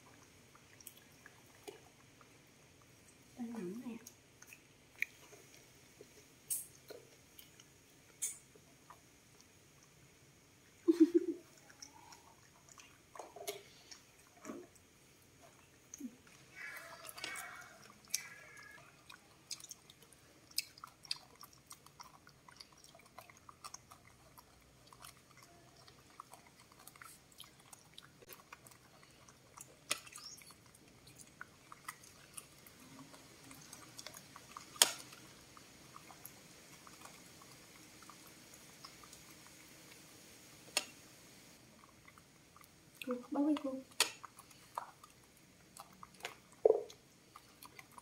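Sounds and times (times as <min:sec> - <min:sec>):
monkeys chewing corn: 0:10.8 - 0:48.0
clicks and crunches: 0:34.0 - 0:35.2, 0:43.9 - 0:44.9.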